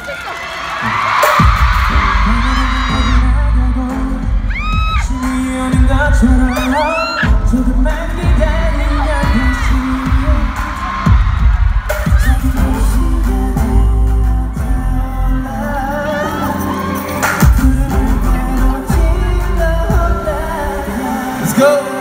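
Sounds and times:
bass-heavy pop backing: 0:00.9 - 0:22.0
man singing into a microphone: 0:01.8 - 0:11.1, 0:12.1 - 0:22.0.

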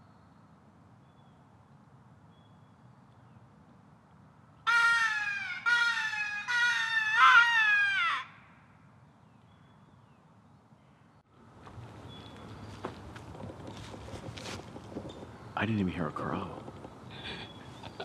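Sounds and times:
crow call caws: 0:04.7 - 0:08.6.

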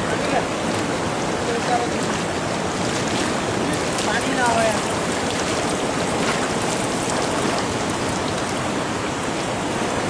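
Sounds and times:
river current rushing: 0:00.0 - 0:10.0
small splashes: 0:01.5 - 0:08.7.

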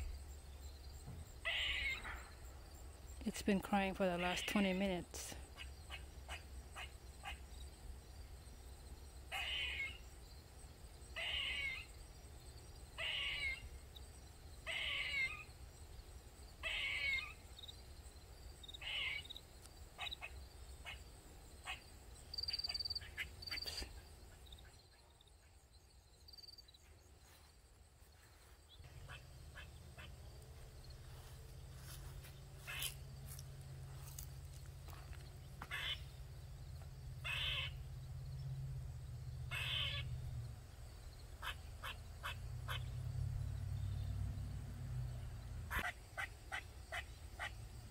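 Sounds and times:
squirrel harsh calls: 0:01.4 - 0:02.3, 0:05.5 - 0:07.4, 0:09.3 - 0:10.0, 0:11.2 - 0:11.9, 0:13.0 - 0:13.7, 0:14.6 - 0:15.5, 0:16.6 - 0:17.4, 0:18.8 - 0:19.4, 0:29.0 - 0:30.1, 0:32.6 - 0:33.0, 0:35.6 - 0:36.1, 0:37.2 - 0:37.8, 0:39.5 - 0:40.1, 0:41.4 - 0:43.0, 0:45.7 - 0:47.5.

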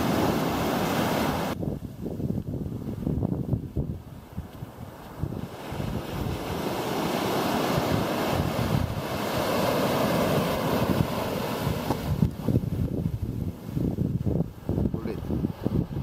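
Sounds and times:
waves washing up a beach: 0:00.0 - 0:02.0, 0:02.7 - 0:16.0
wind buffeting microphone: 0:00.0 - 0:16.0.

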